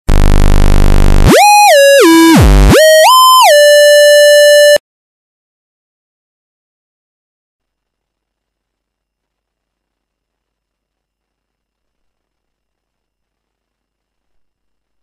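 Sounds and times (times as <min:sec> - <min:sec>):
square-wave tone sweeping in pitch: 0:00.1 - 0:04.8.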